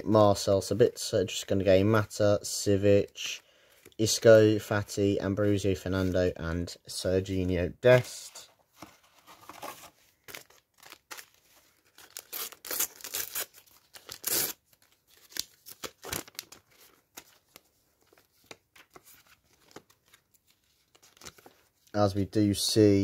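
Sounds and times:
wrapper ripping and crinkling: 10.2s - 17.0s.

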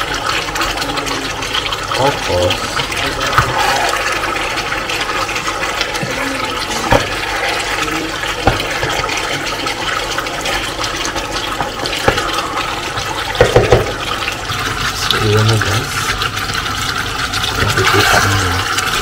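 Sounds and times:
sauce bubbling in a pot: 0.0s - 19.0s
wooden spatula knocking pot: 8.3s - 9.2s, 13.3s - 14.1s.

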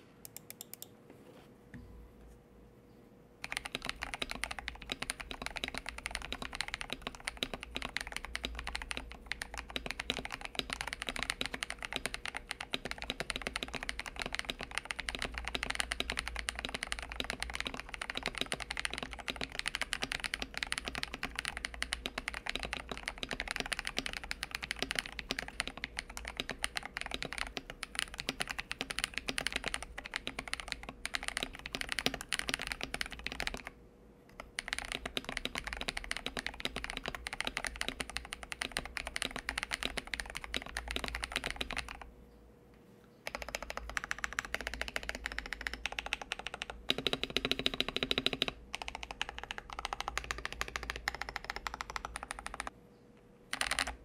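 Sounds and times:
fast mechanical keyboard typing: 3.4s - 42.1s, 43.2s - 52.7s, 53.5s - 54.0s.

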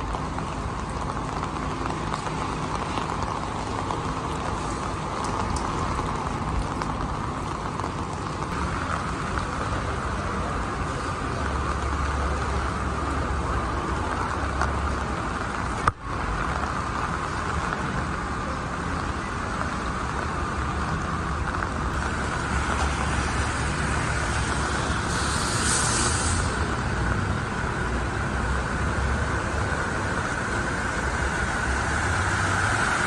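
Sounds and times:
tyres hissing on wet road: 0.0s - 33.0s
short high hiss: 24.4s - 26.8s.

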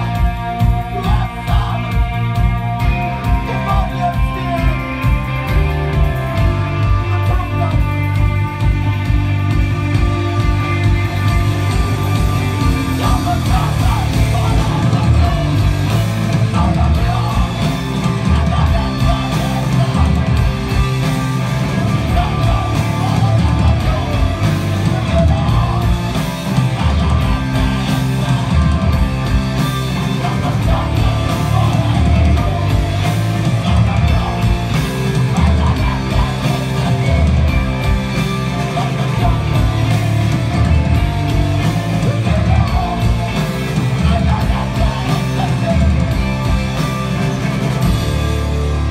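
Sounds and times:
man singing into a microphone: 0.0s - 2.3s, 2.9s - 4.9s, 13.0s - 20.8s, 21.7s - 29.0s, 29.9s - 37.5s, 42.0s - 46.0s
bass guitar: 0.0s - 48.9s
distorted electric guitars: 0.0s - 48.9s
drum kit: 0.0s - 48.9s.

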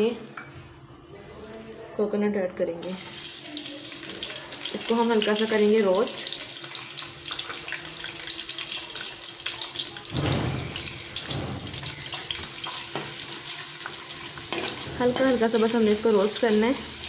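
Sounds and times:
spices sizzling in hot oil: 2.8s - 17.0s.

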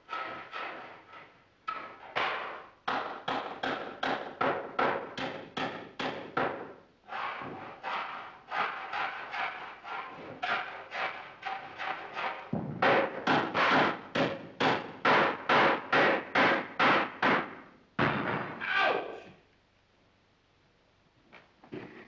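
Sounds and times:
hammering on wood: 1.7s - 18.6s.

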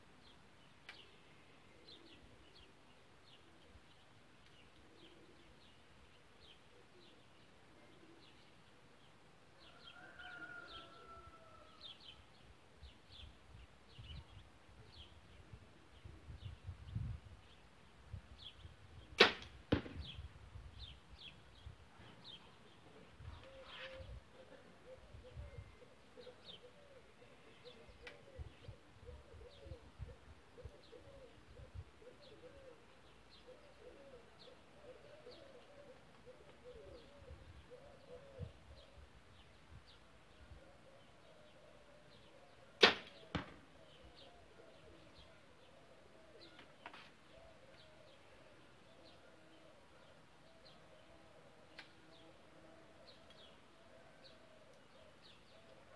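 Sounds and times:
birds chirping and cooing: 0.2s - 55.9s
arrow hitting target: 19.2s - 20.2s, 42.8s - 43.6s
bow string snap: 42.8s - 43.6s.

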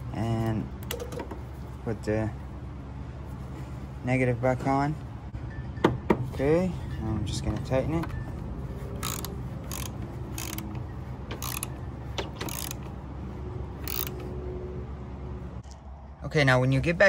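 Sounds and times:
ratchet wrench clicking: 9.0s - 13.0s, 13.8s - 14.3s.

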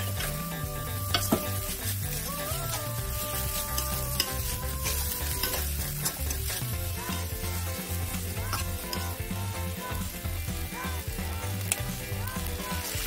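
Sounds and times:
metal spatula scraping a wok: 0.0s - 9.4s
background music with held notes: 0.0s - 13.0s
noodles sizzling: 0.0s - 13.0s.

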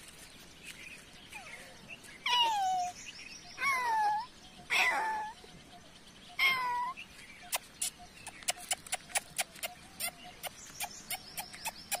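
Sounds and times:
footsteps on gravel: 0.0s - 1.2s.

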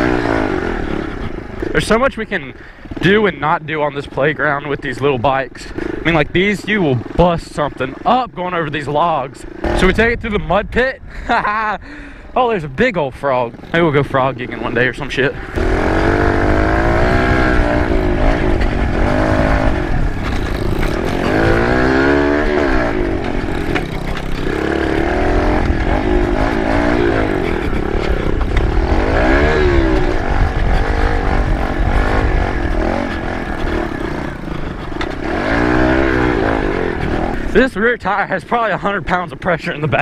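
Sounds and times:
small motorbike engine revving: 0.0s - 1.9s, 9.5s - 10.1s, 15.4s - 37.6s
wind rumble on microphone: 9.6s - 11.9s, 15.4s - 37.6s.

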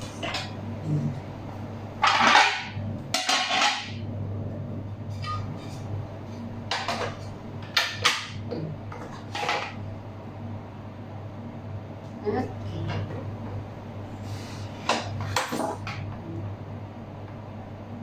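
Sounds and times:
metal plates clattering and scraping: 2.0s - 4.0s.

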